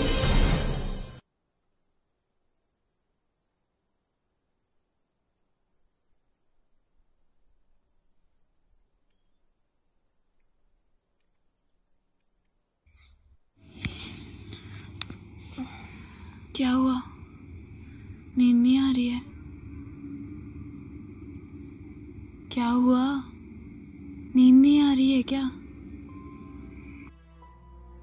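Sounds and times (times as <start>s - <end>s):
crickets chirping: 1.4s - 28.0s
steady high-pitched ring: 19.2s - 27.1s.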